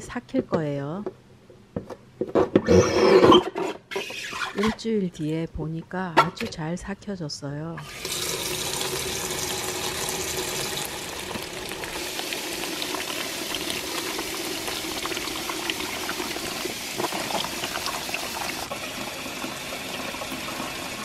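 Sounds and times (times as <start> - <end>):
tap water running into container: 7.8 - 21.0.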